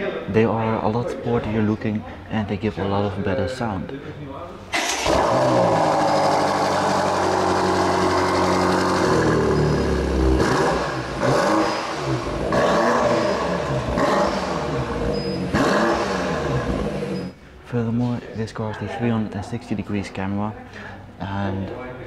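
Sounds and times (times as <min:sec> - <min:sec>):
car engine revving: 0:04.8 - 0:17.4.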